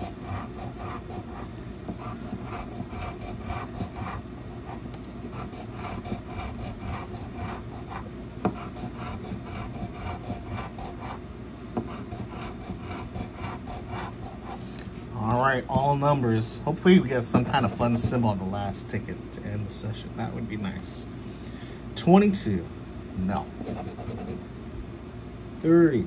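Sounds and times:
coin scratching lottery ticket: 0.0s - 14.6s, 23.6s - 24.4s.

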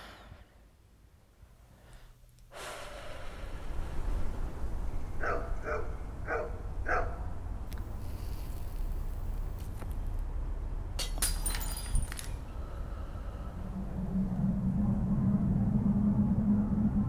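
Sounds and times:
low steady rumble: 0.0s - 17.0s
dog barking: 5.2s - 7.3s.

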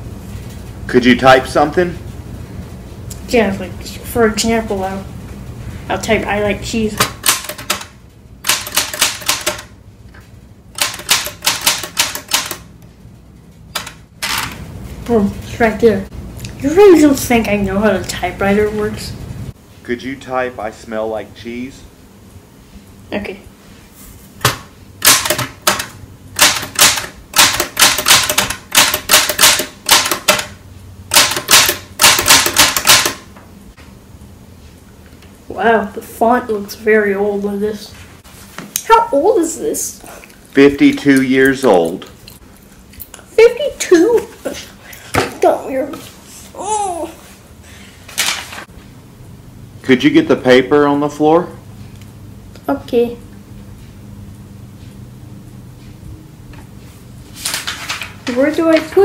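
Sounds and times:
typewriter keys clacking: 7.2s - 9.7s, 10.8s - 12.7s, 25.0s - 30.5s, 31.1s - 33.2s.

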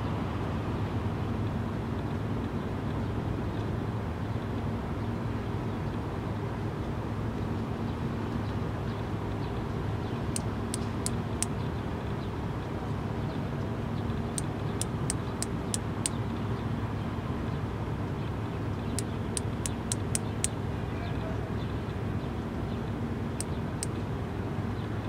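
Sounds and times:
cicada wing-clicking: 10.4s - 11.6s, 14.4s - 16.2s, 18.9s - 20.6s.

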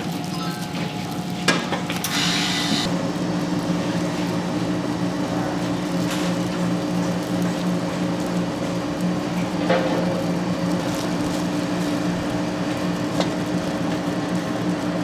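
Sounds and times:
low machine hum with tones: 0.0s - 15.0s
plastic bag rustling: 10.2s - 14.4s.

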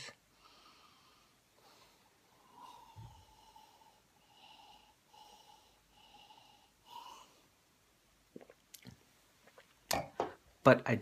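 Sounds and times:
faint nasal breathing: 0.0s - 7.6s.

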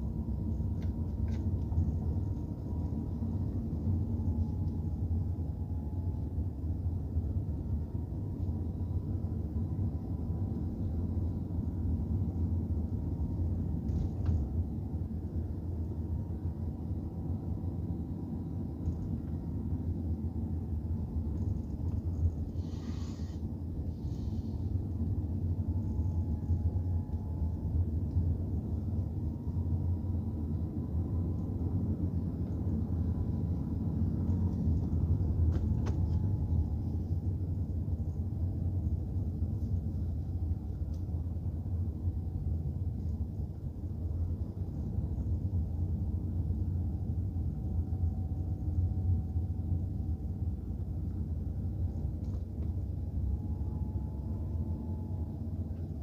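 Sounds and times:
car engine and tyre rumble: 0.0s - 56.0s
faint wavering whine: 0.0s - 56.0s.

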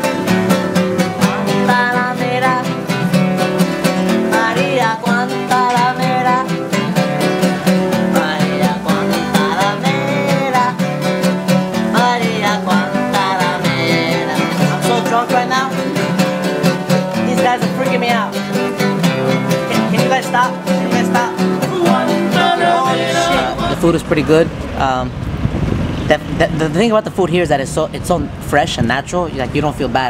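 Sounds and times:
acoustic guitars strummed: 0.0s - 27.2s
man singing: 1.0s - 24.1s.

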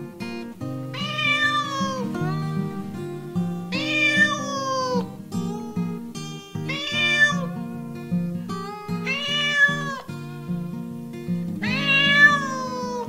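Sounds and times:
plucked-string background music: 0.0s - 13.0s
cat meowing: 0.9s - 7.7s, 9.0s - 10.2s, 11.6s - 13.0s.

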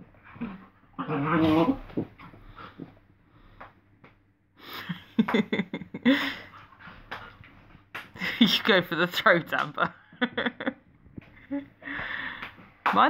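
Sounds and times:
dogs growling and snarling: 0.0s - 3.0s.

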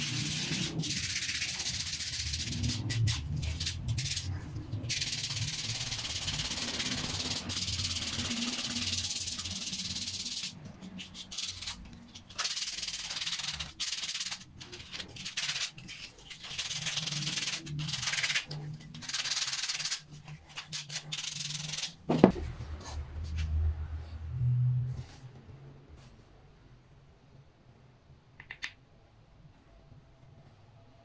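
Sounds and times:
sandpaper rubbing wood: 0.0s - 4.3s, 4.9s - 22.0s.

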